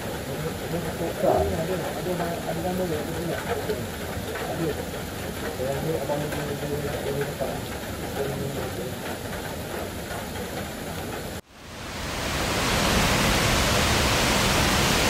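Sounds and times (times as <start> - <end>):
river rapids roaring: 0.0 - 5.1, 11.5 - 15.0.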